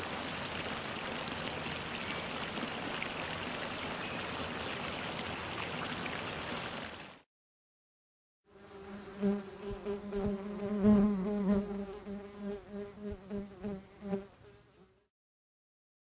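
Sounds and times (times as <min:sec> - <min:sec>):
bee buzzing: 0:08.5 - 0:15.1.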